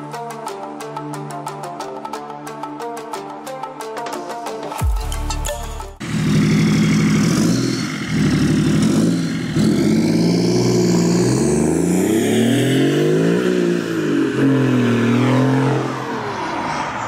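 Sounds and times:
diesel car engine accelerating: 0:06.0 - 0:17.0.

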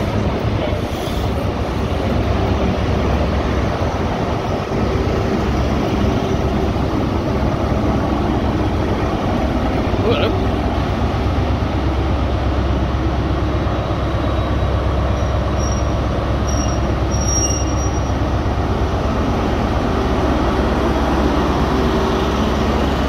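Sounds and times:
diesel train engine rumble: 0:00.0 - 0:23.0.

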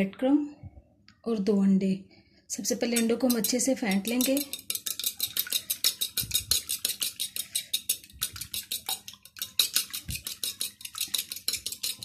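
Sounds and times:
fork beating eggs on plate: 0:02.7 - 0:12.0.

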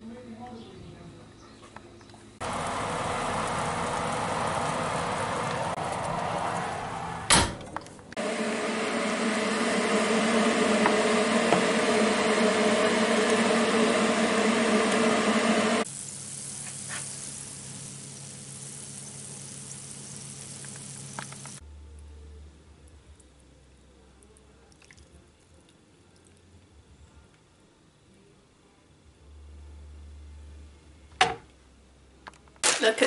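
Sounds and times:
oven fan humming: 0:02.4 - 0:21.6
hot fat sizzling in roasting tin: 0:15.8 - 0:21.6.

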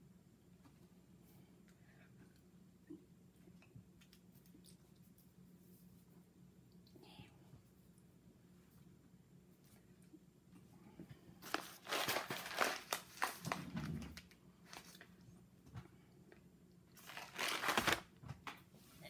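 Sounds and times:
coffee bag crinkling: 0:11.4 - 0:15.2, 0:17.0 - 0:18.1.

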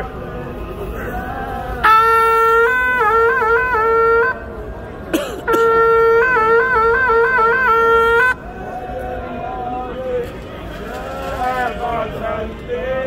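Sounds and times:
wind instrument long notes: 0:00.9 - 0:08.6.

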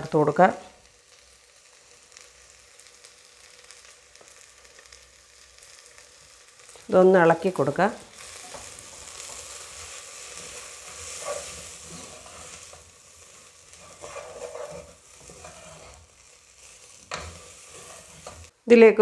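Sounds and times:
onions sizzling in oil: 0:00.0 - 0:18.6
wooden spoon scraping a pot: 0:08.4 - 0:18.5.

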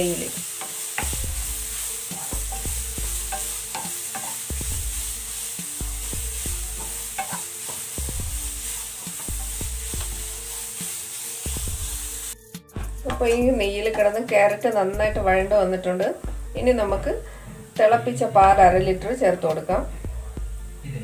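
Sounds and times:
carrot sizzling in a pan: 0:00.0 - 0:19.9
wooden spatula scraping a pan: 0:00.1 - 0:12.4
spatula knocking against pan: 0:02.2 - 0:04.4, 0:06.8 - 0:07.8, 0:13.0 - 0:14.0.

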